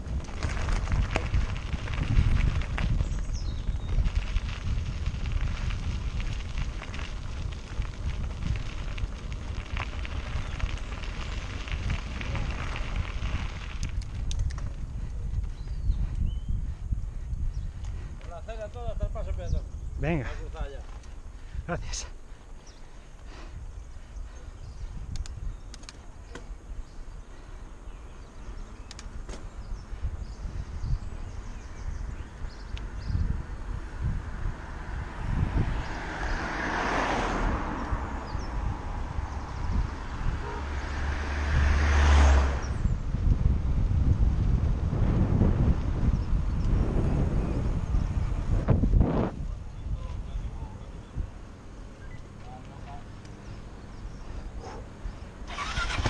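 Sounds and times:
bike clicks and rattles: 0.0s - 16.3s, 20.8s - 21.5s, 24.8s - 26.6s, 28.5s - 30.0s
bike tyres crackling on rough ground: 0.0s - 56.0s
wind rumble on microphone: 0.0s - 56.0s.

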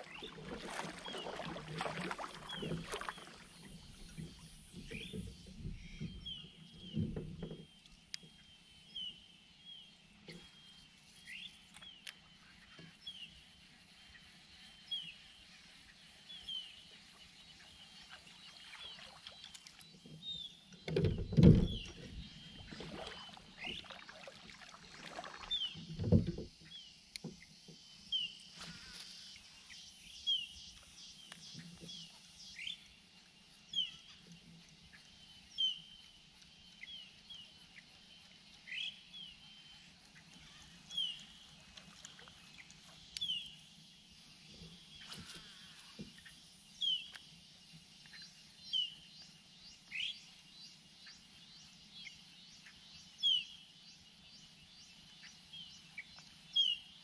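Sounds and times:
low thumps on kayak: 20.8s - 23.9s.

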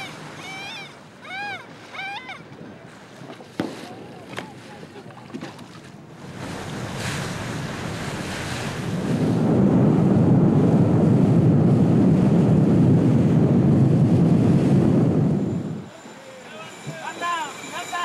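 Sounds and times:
rushing water: 0.0s - 9.4s
wind buffeting microphone: 0.0s - 16.0s.

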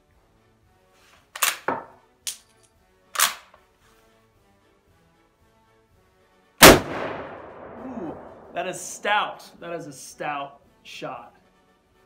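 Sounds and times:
faint background music: 0.0s - 12.0s
loud rifle shot echoing: 6.6s - 8.8s.

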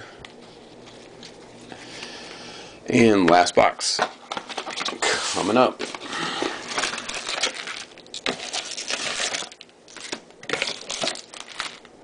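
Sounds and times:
foil packs crinkling: 4.2s - 12.0s.

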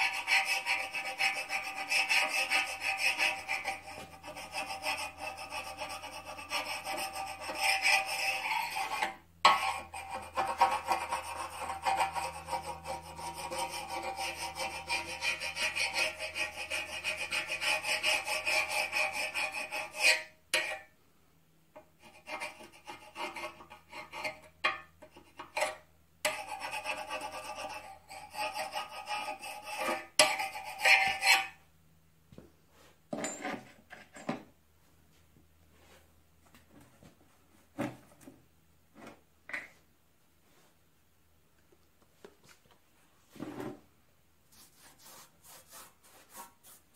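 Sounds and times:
file scraping metal: 0.0s - 20.9s, 21.8s - 31.6s.

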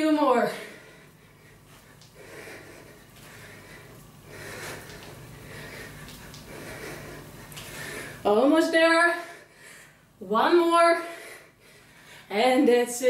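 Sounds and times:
woman breathing hard: 0.4s - 8.3s, 9.1s - 10.2s, 11.0s - 12.3s.

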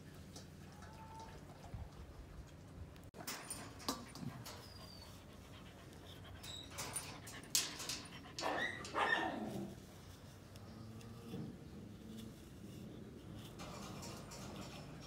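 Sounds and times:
metal comb through fur: 5.9s - 15.0s.

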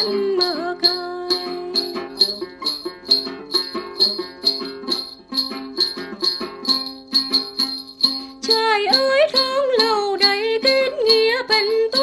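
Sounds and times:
plucked long-necked lute: 0.0s - 12.0s.

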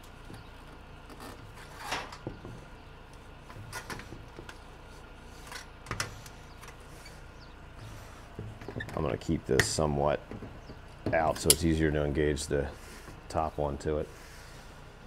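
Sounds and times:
sheet metal scraping and creaking: 1.1s - 2.8s.

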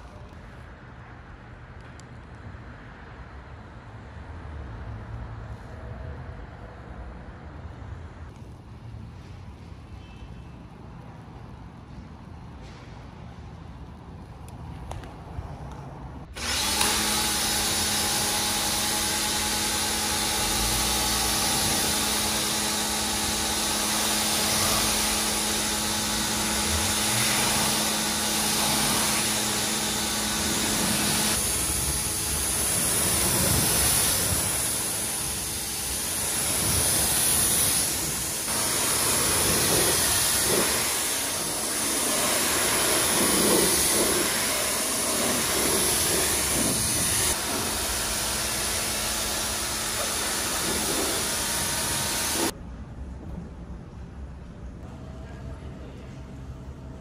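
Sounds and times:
pressure washer pump humming: 16.3s - 52.5s
water jet spraying: 16.4s - 52.5s.

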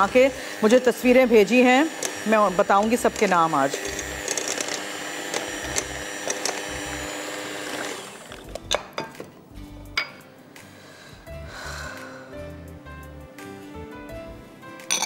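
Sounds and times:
electric hand mixer running: 0.0s - 8.7s.

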